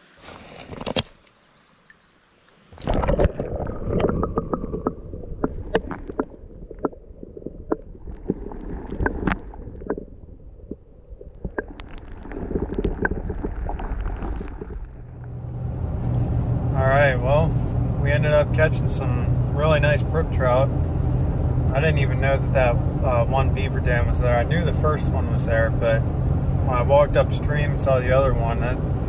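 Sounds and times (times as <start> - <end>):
underwater rumble of moving water: 2.6 - 29.0
underwater clicks and pops: 2.8 - 15.0.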